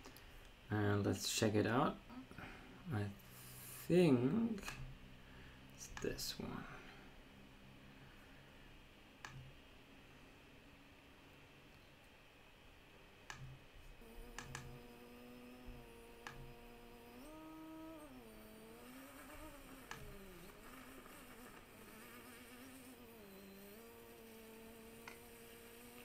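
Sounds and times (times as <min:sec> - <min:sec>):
drone motors buzzing: 0:13.3 - 0:26.0
mouse clicks: 0:14.2 - 0:14.9, 0:15.7 - 0:16.6, 0:19.2 - 0:21.5.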